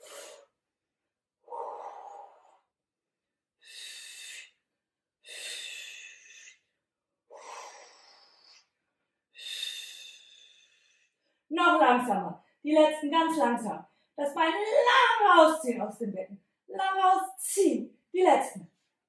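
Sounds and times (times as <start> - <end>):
woman breathing hard: 0.0 - 0.6, 1.4 - 2.7, 3.6 - 6.7, 7.3 - 8.8, 9.4 - 11.5.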